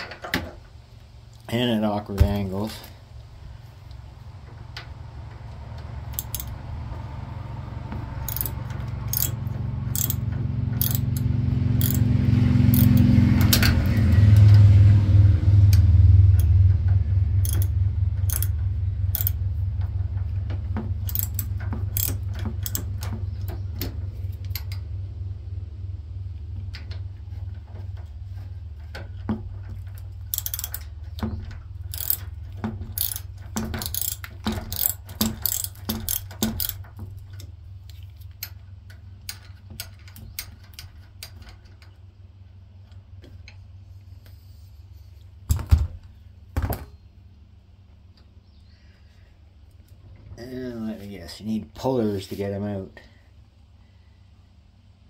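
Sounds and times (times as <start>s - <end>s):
low hum: 0.0s - 55.0s
socket ratchet clicking: 6.1s - 6.6s, 8.2s - 12.1s, 12.7s - 14.6s, 17.4s - 19.4s, 21.0s - 23.1s, 30.3s - 31.2s, 31.8s - 38.5s.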